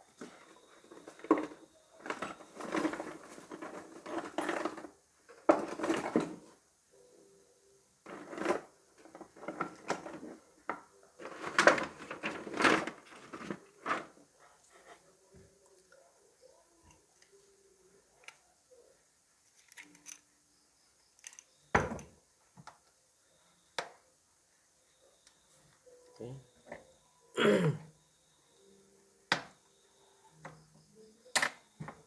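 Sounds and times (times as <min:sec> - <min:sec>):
hard objects clattering and scraping: 0:00.2 - 0:06.6, 0:08.1 - 0:14.2.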